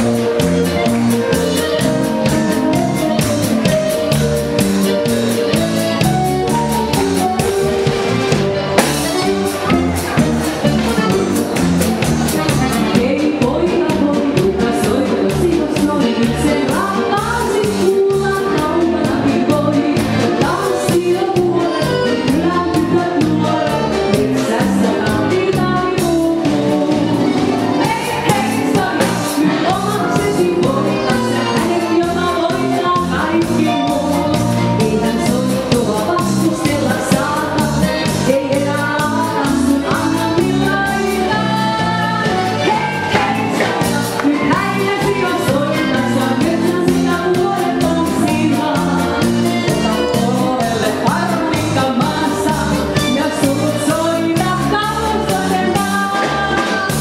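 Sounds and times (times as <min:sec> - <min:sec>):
band with accordion: 0:00.0 - 0:57.0
woman singing into microphone: 0:12.3 - 0:57.0.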